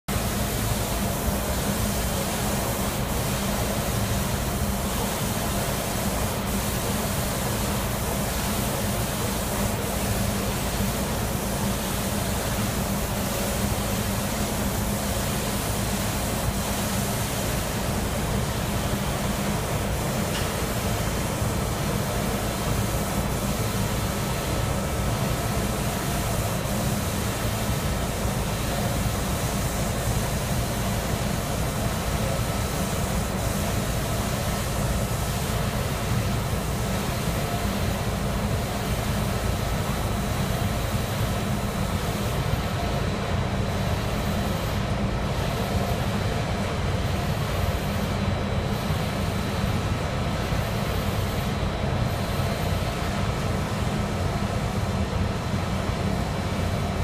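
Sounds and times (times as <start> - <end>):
spray guns hissing: 0.1 - 42.9.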